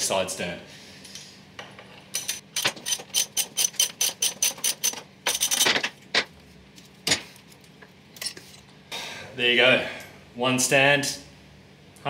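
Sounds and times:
ratchet wrench clicking: 2.2 - 5.6.

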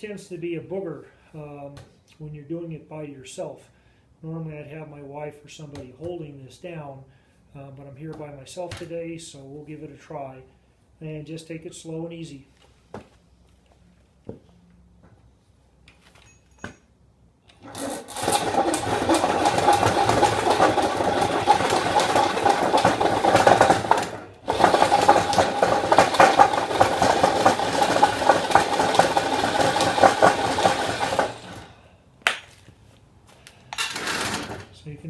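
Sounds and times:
blade shaving wood: 17.5 - 31.7
drill motor whining: 17.5 - 31.7.

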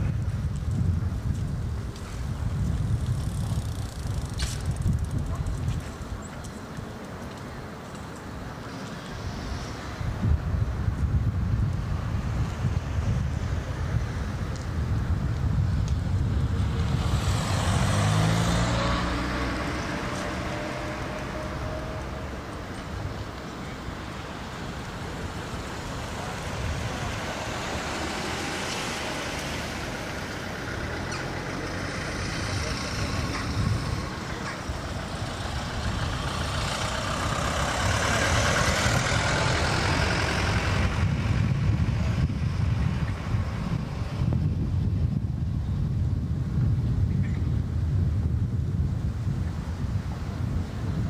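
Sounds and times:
wind rumbling on microphone: 0.0 - 51.0
engine passing by: 16.2 - 44.6.

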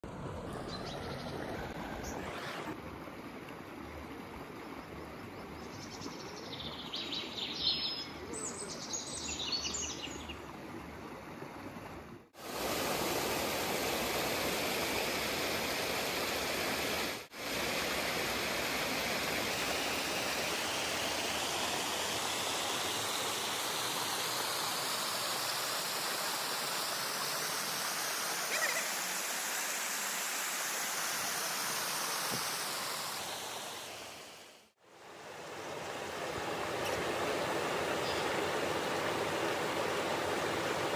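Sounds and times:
mountain stream flowing over rocks: 10.4 - 40.9.

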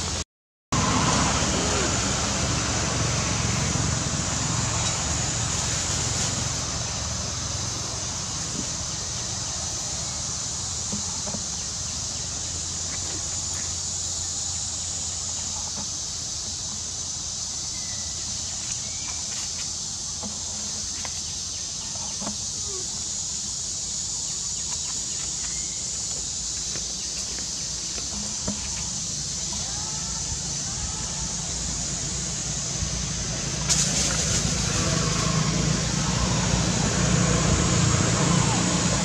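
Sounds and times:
steady high hiss: 0.8 - 39.0
faint short chirping calls: 24.3 - 26.3.

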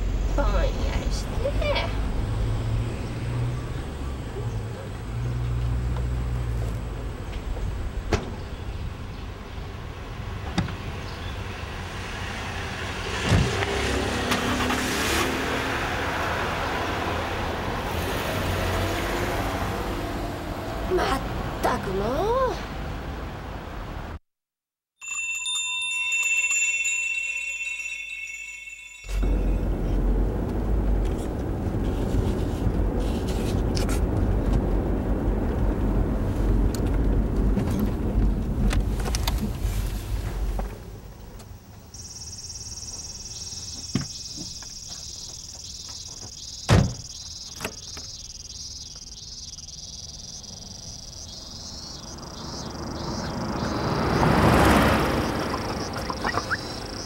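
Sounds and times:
car cabin road noise: 0.0 - 24.2, 29.0 - 42.1, 42.8 - 57.0
car passing by: 0.5 - 6.8, 10.0 - 21.7, 51.2 - 57.0
bell-like chime: 25.0 - 29.8
insects buzzing: 40.7 - 57.0.

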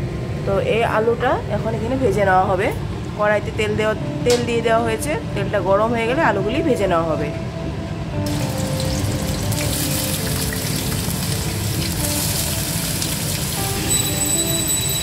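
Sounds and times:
potatoes sizzling in hot oil: 8.3 - 15.0.

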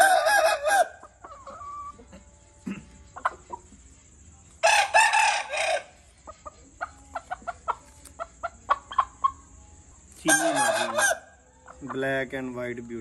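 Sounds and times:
rooster crowing: 0.0 - 2.1, 4.6 - 6.2, 10.2 - 11.6
chicken clucking: 0.0 - 12.3.

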